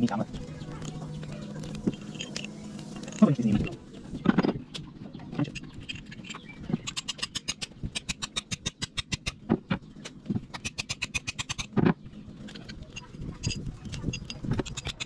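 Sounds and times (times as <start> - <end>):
hand tool scraping steel: 12.5 - 15.0.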